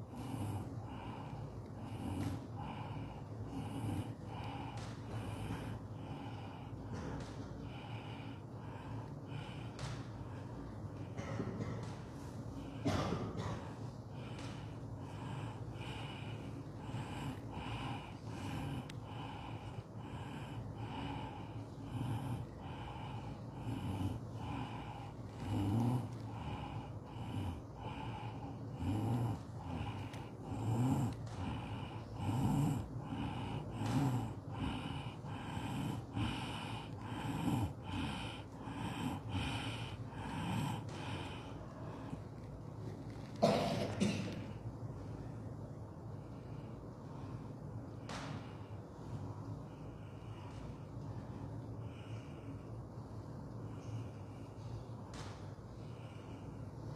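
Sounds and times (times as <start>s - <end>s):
group chanting in unison: 15.2s - 41.4s.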